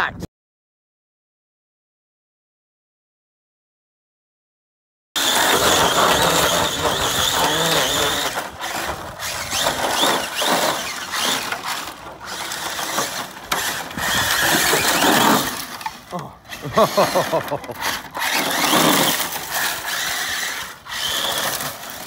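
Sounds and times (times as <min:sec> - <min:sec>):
rc car electric motor whining: 0:05.2 - 0:22.0.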